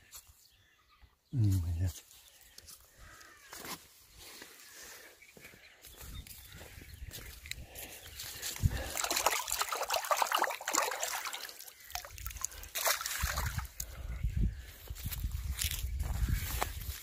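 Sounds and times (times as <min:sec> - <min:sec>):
fish splashing in water: 0:08.7 - 0:13.8.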